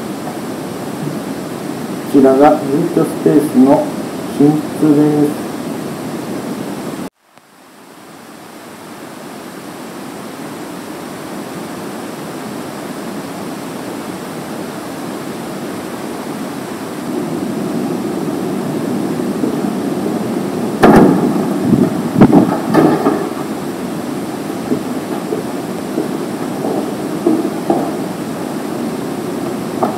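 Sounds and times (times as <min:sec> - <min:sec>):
steady rushing hiss: 0:00.0 - 0:29.9
door opening knocks and clunks: 0:20.8 - 0:23.6.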